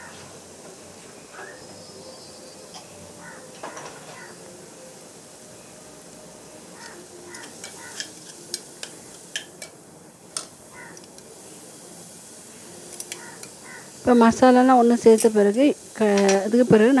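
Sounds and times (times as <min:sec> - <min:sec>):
masala sizzling in a pot: 0:00.0 - 0:17.0
metal spoon scraping a pot: 0:07.4 - 0:09.4.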